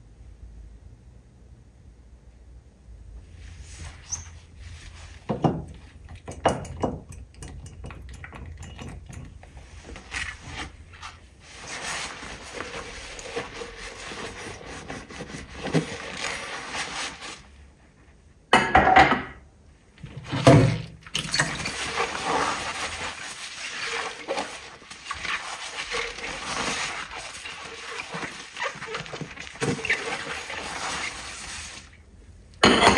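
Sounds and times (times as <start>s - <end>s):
dishes and pots clinking: 5.3s - 9.4s, 18.5s - 19.4s, 32.6s - 32.9s.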